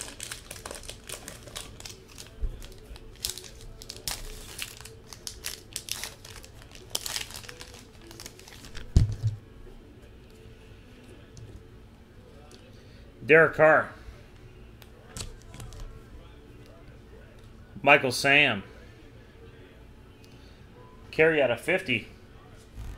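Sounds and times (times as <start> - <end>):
card pack wrapper crinkling: 0.0 - 9.2.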